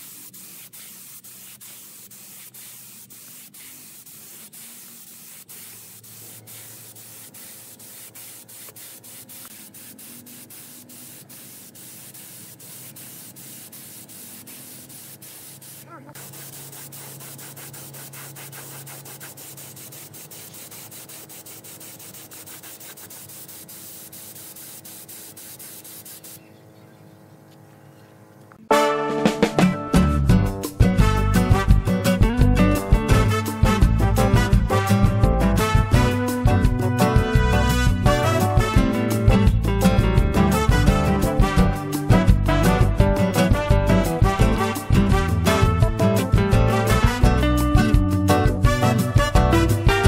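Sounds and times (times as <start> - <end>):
spray gun hissing: 0.0 - 26.5.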